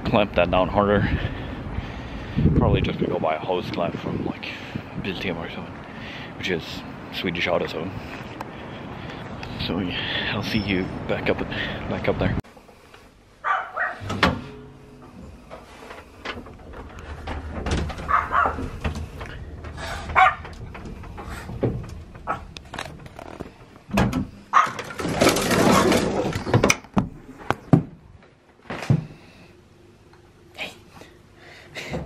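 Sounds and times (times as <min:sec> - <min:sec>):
small dogs barking: 0:13.4 - 0:14.0, 0:18.1 - 0:18.6, 0:20.2 - 0:20.5, 0:24.5 - 0:24.8
metal scissor gate clattering: 0:14.0 - 0:15.6.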